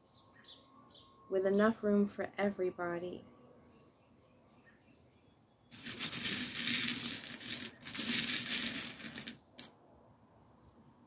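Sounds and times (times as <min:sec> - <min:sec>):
metal charms jingling: 0:05.7 - 0:09.7.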